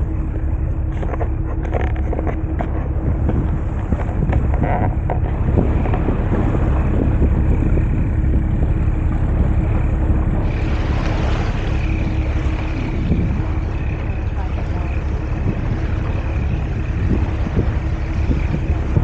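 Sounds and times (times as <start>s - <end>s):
faint steady hum: 0.0s - 19.0s
wind buffeting microphone: 0.0s - 19.0s.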